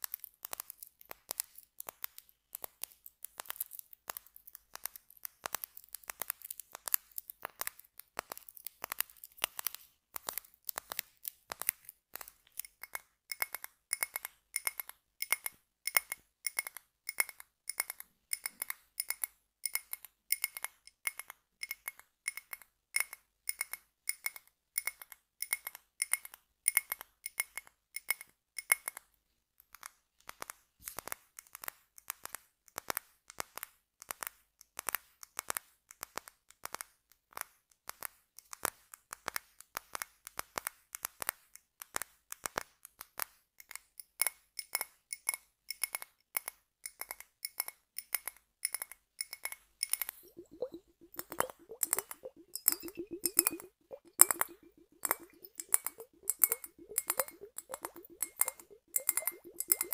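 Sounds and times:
tapping on glass jar: 46.9s - 59.9s.

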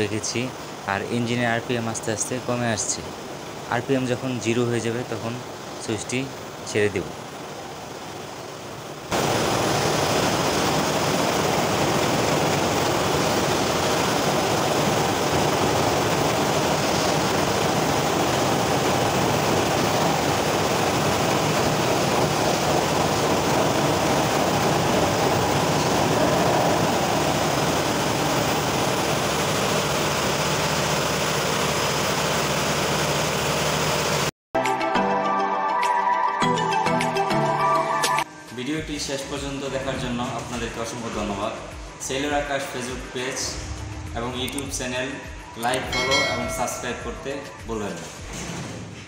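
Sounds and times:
loud engine-room noise: 9.0s - 34.3s, 38.8s - 48.5s
diesel engine winding down: 41.6s - 46.4s.

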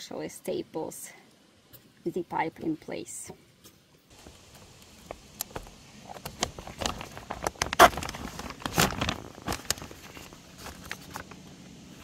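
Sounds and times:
plastic sheeting crinkling: 4.1s - 12.0s.

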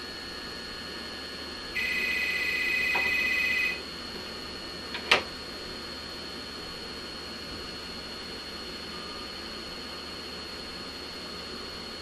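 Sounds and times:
telephone ringer trilling: 1.8s - 3.8s.

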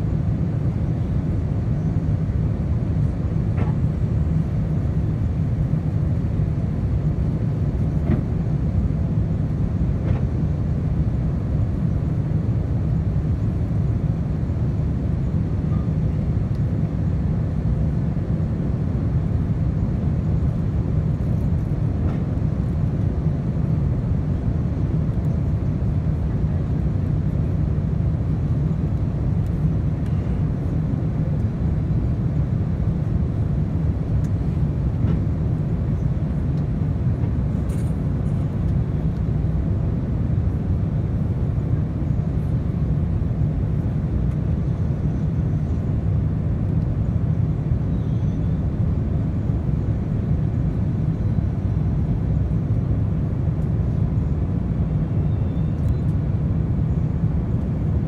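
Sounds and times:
aircraft cabin engine rumble: 0.0s - 58.0s.

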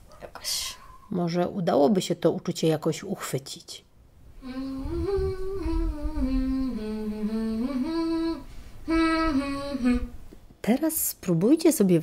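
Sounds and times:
woman humming a slow melody: 4.4s - 10.2s.

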